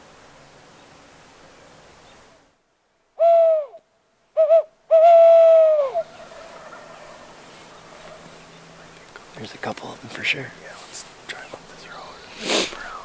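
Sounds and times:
owl hoots: 3.2 - 3.8, 4.4 - 8.4.

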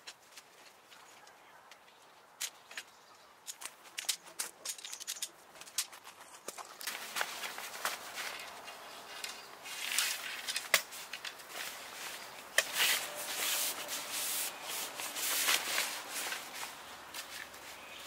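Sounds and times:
nylon fabric rustling: 6.9 - 17.9.

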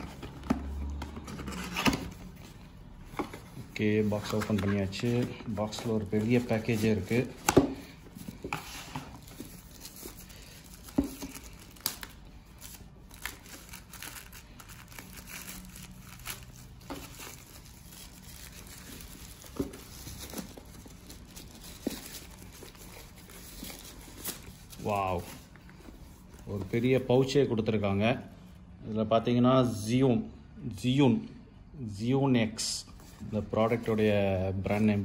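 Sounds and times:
packaging wrap crinkling and tearing: 9.2 - 25.4.

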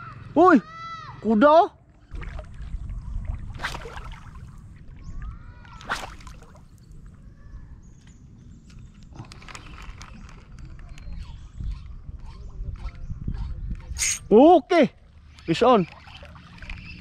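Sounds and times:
wind and water rumble: 1.3 - 17.0
short sharp splashes: 2.1 - 4.7, 5.6 - 6.8.

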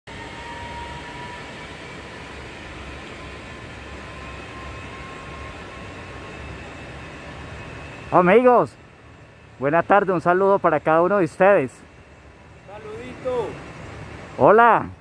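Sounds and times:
outdoor background rumble: 0.1 - 15.0
faint thin high tone: 4.0 - 7.0.

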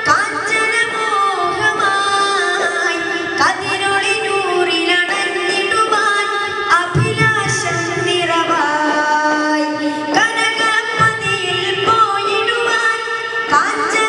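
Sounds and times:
devotional song over loudspeaker: 0.0 - 14.0
sharp drum strikes: 6.8 - 8.6.

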